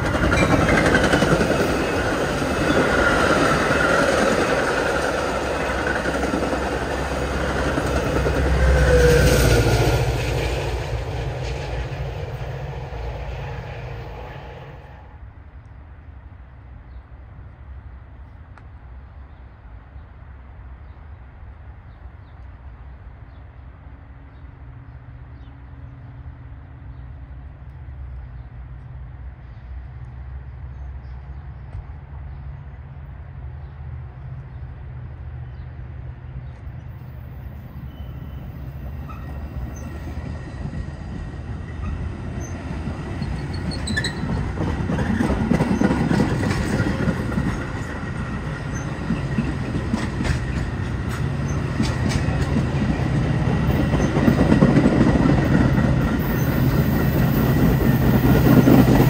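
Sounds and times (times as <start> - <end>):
train wheels rumbling on rails: 0.0 - 15.4, 21.8 - 59.0
locomotive engine hum: 0.0 - 59.0
wheel squeal: 43.2 - 44.5.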